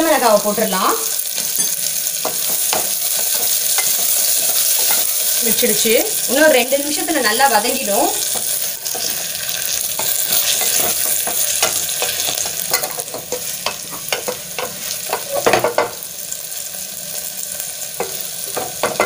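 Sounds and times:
onions sizzling in hot oil: 0.0s - 19.0s
spatula scraping a pot: 8.3s - 15.8s.

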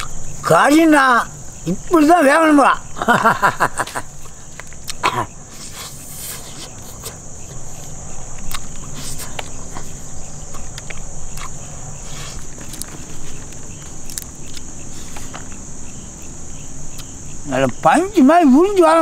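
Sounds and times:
crickets chirring: 0.0s - 19.0s
voiced murmur: 0.0s - 19.0s
man chewing food: 3.8s - 17.3s.

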